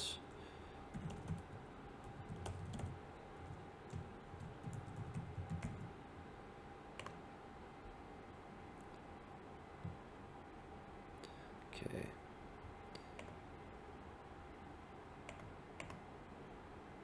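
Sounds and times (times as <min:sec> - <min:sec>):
typing on keyboard: 0:00.9 - 0:01.5, 0:02.1 - 0:05.9.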